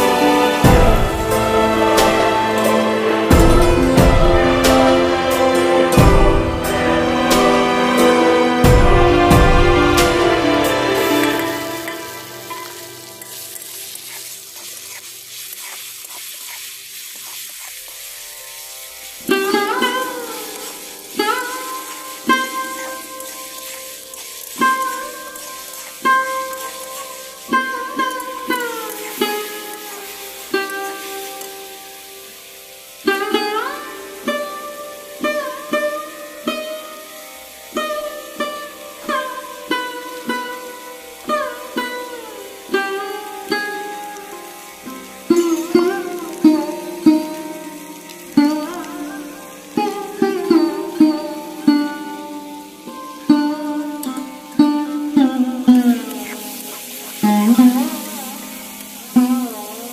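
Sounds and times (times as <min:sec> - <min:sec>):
plucked string instrument melody: 0:00.0 - 0:14.8, 0:17.8 - 0:59.9
food sizzling in oil: 0:00.0 - 0:59.9
metal spatula scraping a pan: 0:11.0 - 0:31.3.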